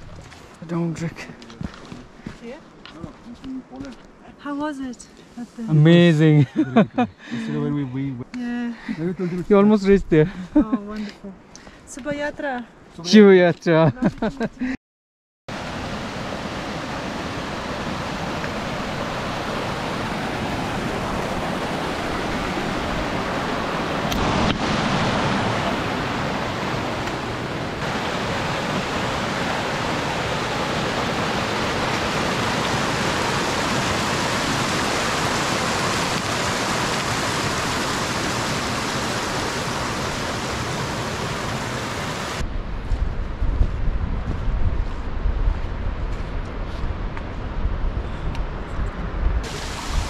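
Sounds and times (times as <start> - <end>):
rushing water: 15.5 - 42.4, 49.4 - 50.0.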